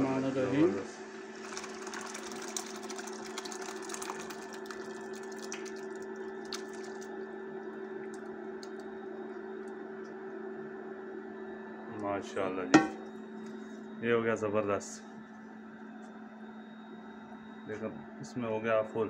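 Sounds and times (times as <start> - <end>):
cooktop humming: 0.1 - 10.5, 12.2 - 13.8
liquid splashing and bubbling: 1.4 - 9.0.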